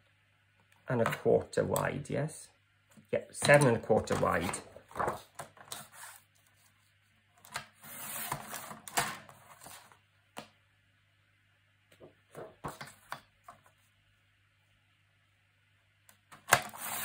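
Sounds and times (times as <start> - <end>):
paper rustling: 3.6 - 10.0, 12.0 - 13.9.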